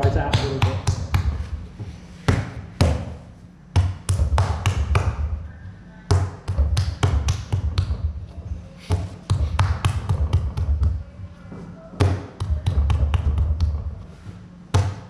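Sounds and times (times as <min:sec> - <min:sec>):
clay slapped by hand on wood: 0:02.3 - 0:03.2, 0:03.8 - 0:05.2.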